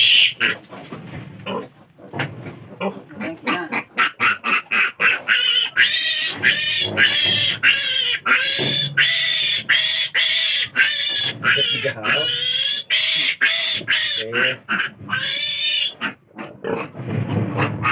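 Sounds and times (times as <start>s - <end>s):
piglet grunting: 0.0s - 0.6s, 1.4s - 17.9s
piglet squealing: 0.0s - 0.6s, 3.5s - 17.0s.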